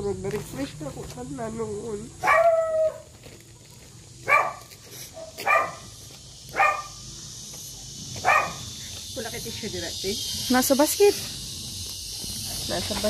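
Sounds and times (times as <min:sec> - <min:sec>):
dog barking: 0:02.2 - 0:03.1, 0:04.2 - 0:05.9, 0:06.5 - 0:07.0, 0:08.2 - 0:08.7.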